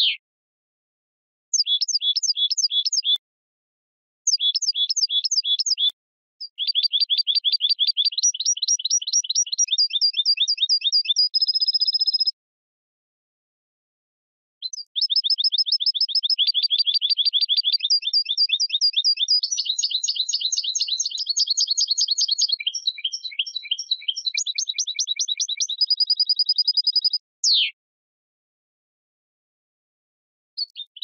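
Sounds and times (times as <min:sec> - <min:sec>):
goldfinch singing: 0:01.6 - 0:03.2, 0:04.3 - 0:05.9, 0:06.5 - 0:12.3, 0:14.6 - 0:27.7.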